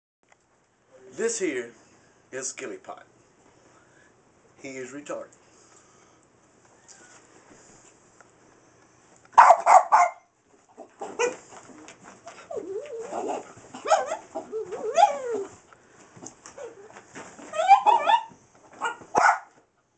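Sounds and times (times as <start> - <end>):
dog barking: 9.4 - 10.3, 13.8 - 14.2, 17.7 - 19.6
dog whining and yelping: 12.2 - 15.6, 16.5 - 19.5.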